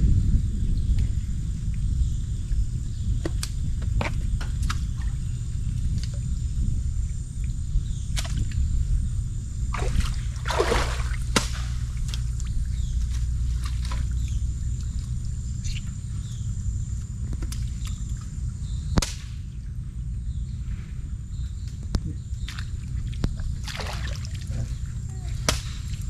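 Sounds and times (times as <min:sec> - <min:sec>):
steady low rumble: 0:00.0 - 0:26.0
water sloshing: 0:09.7 - 0:15.9, 0:22.4 - 0:26.0.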